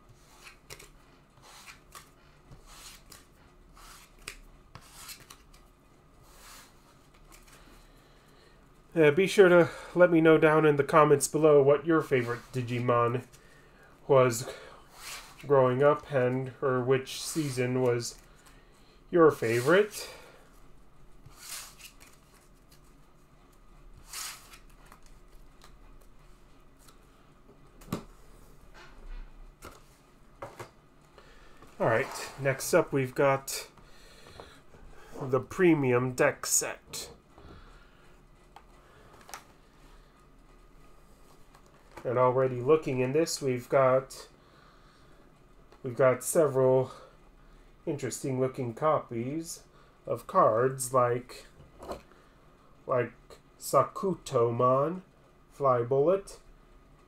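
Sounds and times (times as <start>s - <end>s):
cards swishing on table: 0.2s - 5.6s, 21.2s - 22.9s, 24.0s - 26.1s.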